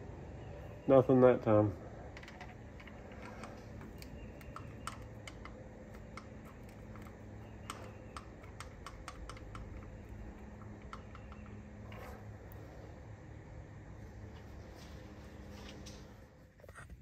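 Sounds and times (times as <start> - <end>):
faint low hum: 0.0 - 17.0
light metal clicks and taps: 2.2 - 11.6.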